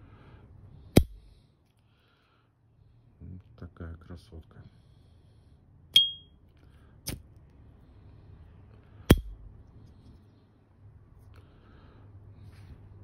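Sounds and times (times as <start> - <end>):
lighter cap ringing ping: 6.0 - 6.3.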